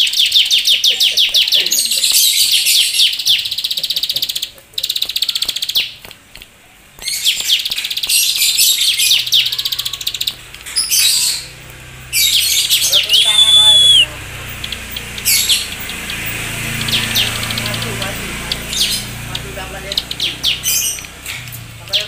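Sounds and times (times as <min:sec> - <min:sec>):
bird chattering song: 0:00.0 - 0:22.0
bird whistle-like tone: 0:12.9 - 0:14.1.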